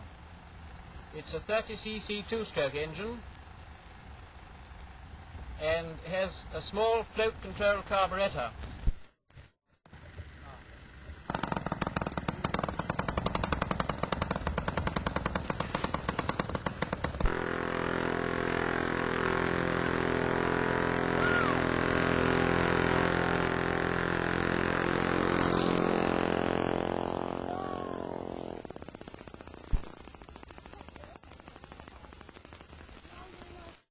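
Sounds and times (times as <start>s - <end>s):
model aircraft engine running: 10.0s - 32.3s.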